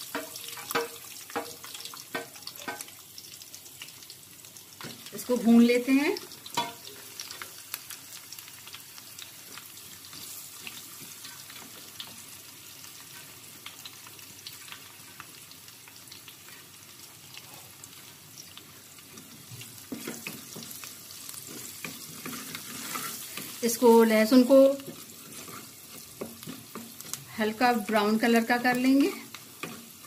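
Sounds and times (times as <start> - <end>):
sizzling hiss with crackles: 0.0 - 30.0
wooden spatula scraping pan: 19.8 - 20.8, 21.4 - 23.9, 24.8 - 27.3.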